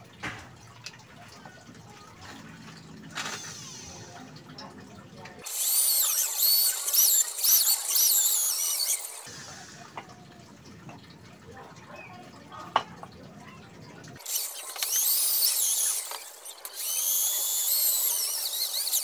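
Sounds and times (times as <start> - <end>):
electric drill whining: 3.1 - 4.2, 5.4 - 9.3, 14.2 - 19.0.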